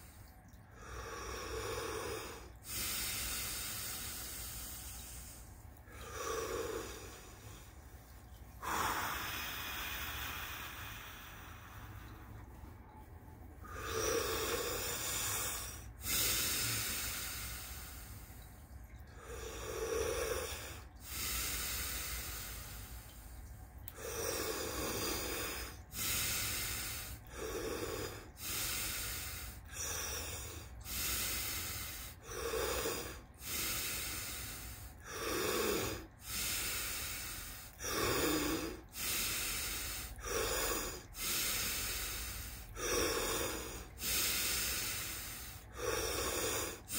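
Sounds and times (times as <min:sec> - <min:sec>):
steady low hum: 0:00.0 - 0:46.9
man breathing forcefully: 0:19.2 - 0:23.2, 0:24.0 - 0:46.9.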